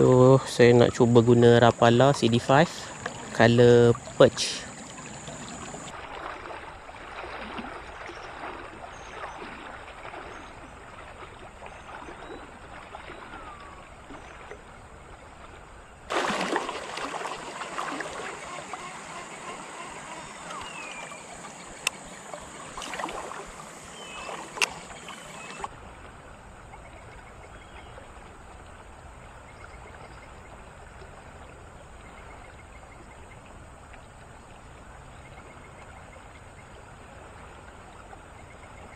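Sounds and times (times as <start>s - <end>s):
water splashing: 0.0s - 26.8s
river water flowing and gurgling: 0.0s - 38.9s.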